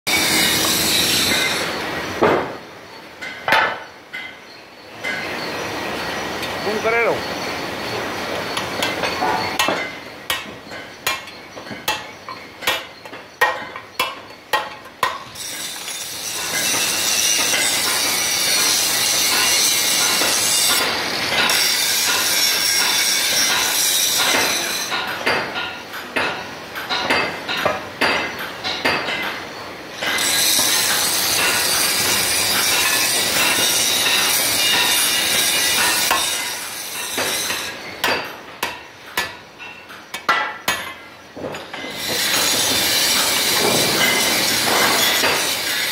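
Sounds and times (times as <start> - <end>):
loud steady hiss: 0.1 - 3.2, 41.9 - 45.9
metal knocks and clinks: 8.5 - 38.5.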